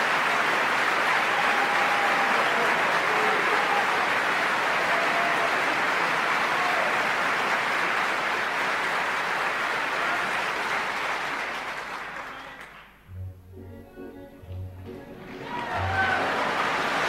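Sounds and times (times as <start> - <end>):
audience applause: 0.0 - 13.0, 14.8 - 17.0
soft low music notes: 13.0 - 16.6.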